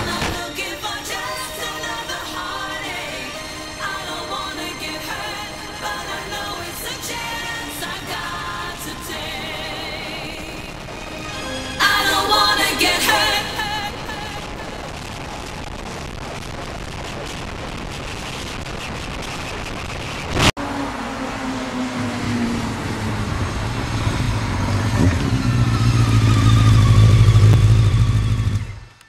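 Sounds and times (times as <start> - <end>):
wind rush: 2.5 - 28.2
motorcycle engine running: 20.9 - 29.0.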